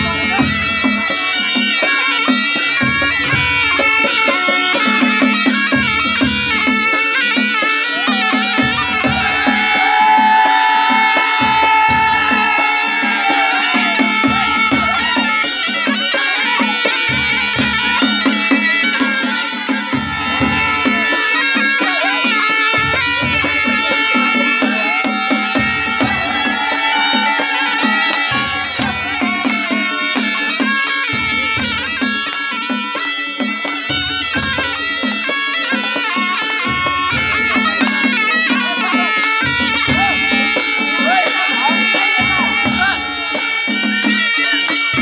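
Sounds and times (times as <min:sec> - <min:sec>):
reed pipes playing melody: 0:00.0 - 0:45.0
quick drum beat: 0:01.9 - 0:15.7, 0:16.4 - 0:32.2.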